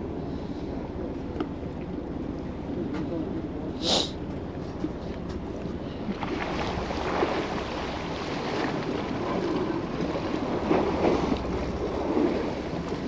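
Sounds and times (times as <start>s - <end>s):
low rumble: 0.0s - 13.0s
sea water slapping boat: 0.0s - 13.0s
wind: 0.0s - 13.0s.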